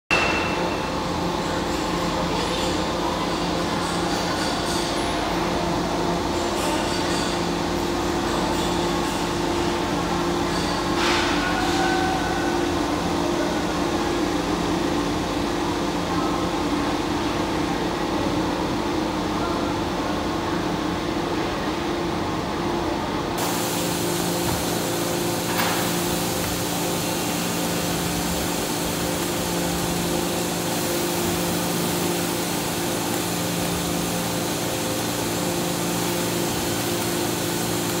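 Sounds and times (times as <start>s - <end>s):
hiss of water spray and steam: 23.4s - 38.0s
hydraulic press humming: 23.4s - 38.0s.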